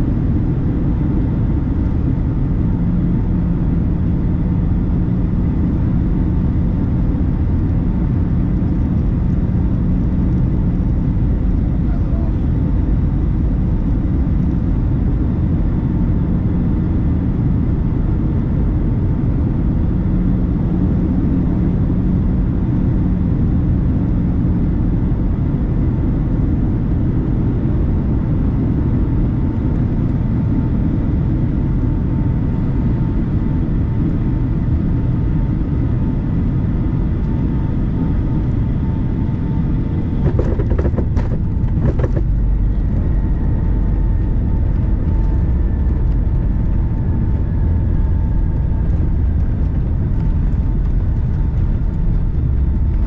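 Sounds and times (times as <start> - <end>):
airplane cabin airflow and engine: 0.0 - 53.0
low hum: 0.0 - 53.0
knocks and rattles: 40.2 - 42.4.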